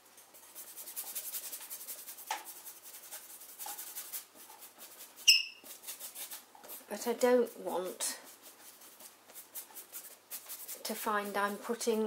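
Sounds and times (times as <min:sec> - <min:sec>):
paintbrush rubbing on board: 0:00.4 - 0:12.0
short high chirp: 0:05.3 - 0:05.6.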